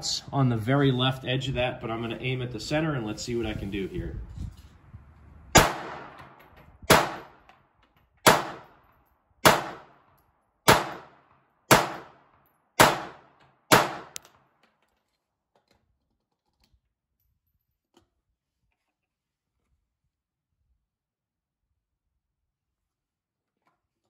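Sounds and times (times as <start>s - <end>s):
pistol shots with echo: 5.5s - 7.4s, 8.2s - 8.8s, 9.4s - 10.1s, 10.7s - 14.2s.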